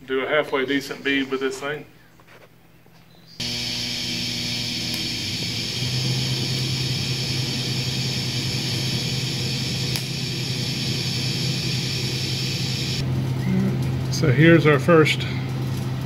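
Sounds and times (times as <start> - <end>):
welding arc humming and hissing: 3.4 - 16.0.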